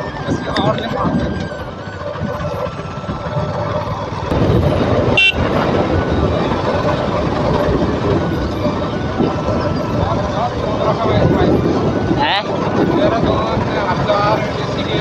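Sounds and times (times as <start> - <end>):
motorcycle engine running: 0.0 - 15.0
road noise: 0.0 - 15.0
motorcycle horn toot: 5.1 - 5.6.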